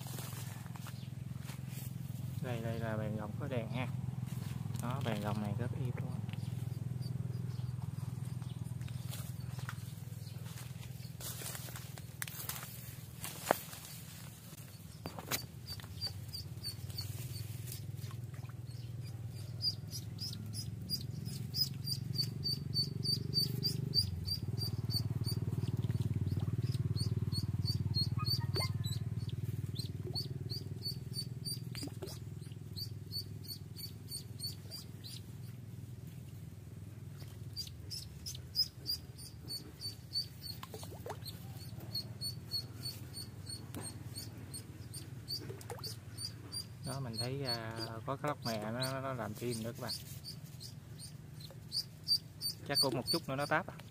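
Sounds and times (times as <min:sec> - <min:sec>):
steady low rumble: 0:00.0 - 0:40.3
duckling peeping: 0:15.0 - 0:35.4, 0:37.2 - 0:53.9.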